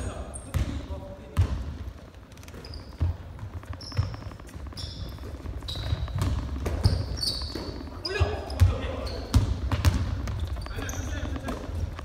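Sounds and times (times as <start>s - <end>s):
sneaker squeaks: 0.0s - 1.7s, 2.3s - 12.0s.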